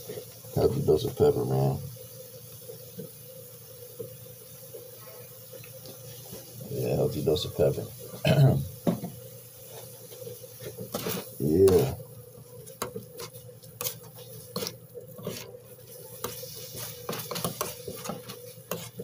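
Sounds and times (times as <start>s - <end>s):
spatulas scraping on grill: 6.0s - 19.0s.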